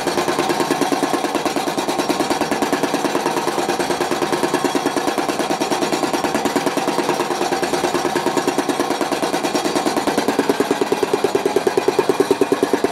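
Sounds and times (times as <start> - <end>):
machine ball knocking a bat: 0.0 - 12.9.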